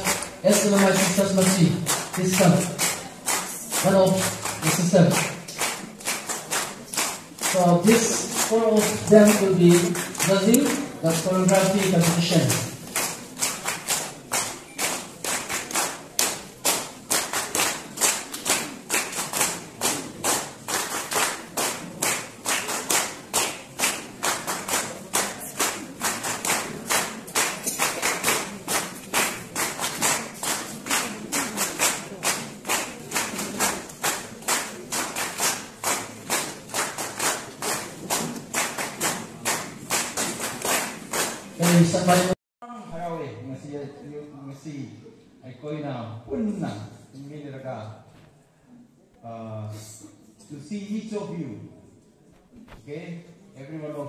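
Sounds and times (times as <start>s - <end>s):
audience clapping in time: 0.0s - 42.4s.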